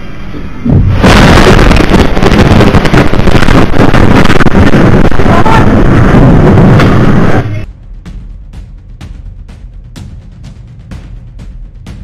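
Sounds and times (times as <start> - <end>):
loud crackling rumble: 0.0 - 9.8
explosion blast: 0.6 - 7.7.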